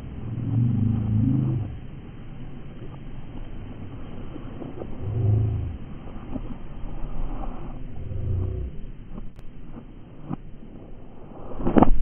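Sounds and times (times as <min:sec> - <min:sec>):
motor engine revving: 0:00.0 - 0:02.1, 0:04.8 - 0:06.1, 0:08.0 - 0:08.9.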